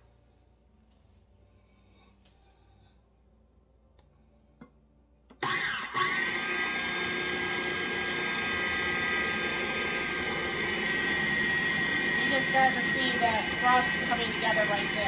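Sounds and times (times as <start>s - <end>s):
food processor motor running: 5.4s - 15.0s.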